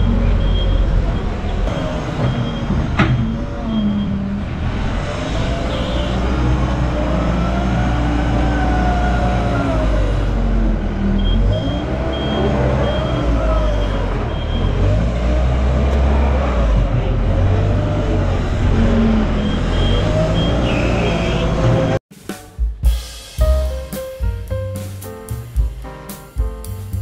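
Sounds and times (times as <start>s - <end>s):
reversing alarm beeping: 0.0s - 4.3s, 11.1s - 14.9s, 19.3s - 21.6s
heavy diesel engines rumbling: 0.0s - 22.0s.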